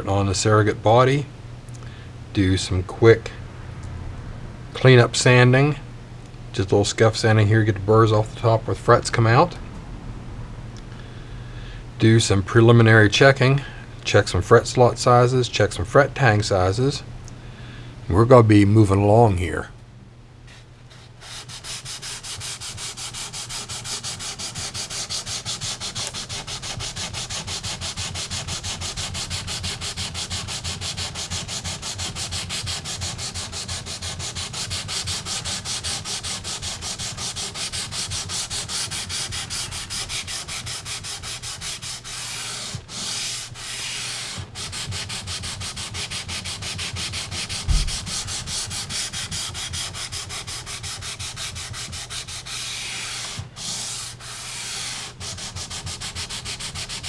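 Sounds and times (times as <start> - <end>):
sandpaper rubbing on wood: 20.5 - 57.0
thump: 47.6 - 48.2.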